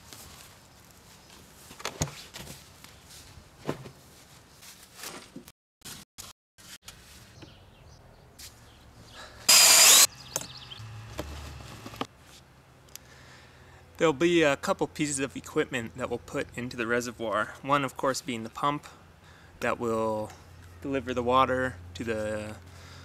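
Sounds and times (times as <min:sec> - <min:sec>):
loud harsh noise burst: 0:09.5 - 0:10.1.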